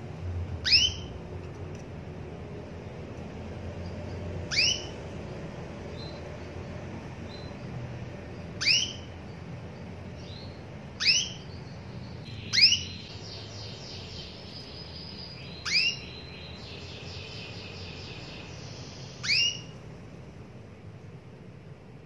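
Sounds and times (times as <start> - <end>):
canary upward-sweeping chirps: 0.6 - 1.2, 3.8 - 7.7, 8.4 - 19.8.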